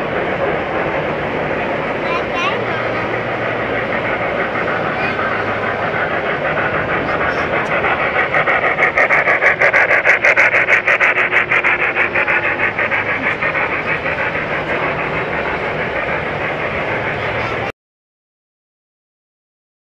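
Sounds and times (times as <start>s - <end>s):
model steam locomotive chuffing: 0.0s - 17.7s
train running rumble: 0.0s - 17.7s.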